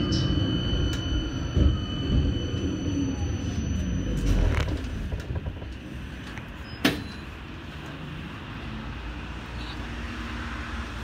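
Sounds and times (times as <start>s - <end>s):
high whine: 0.0s - 6.6s
tram rumbling on rails: 0.0s - 11.0s.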